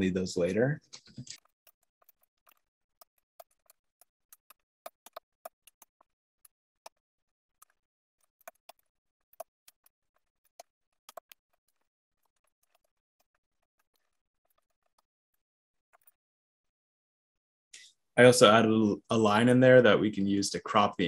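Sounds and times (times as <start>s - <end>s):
keyboard typing: 1.0s - 7.0s, 7.6s - 15.1s.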